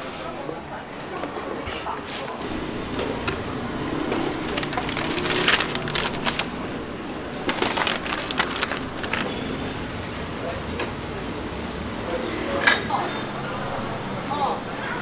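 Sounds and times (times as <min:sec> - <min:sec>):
food packaging crinkling: 0:04.1 - 0:09.5.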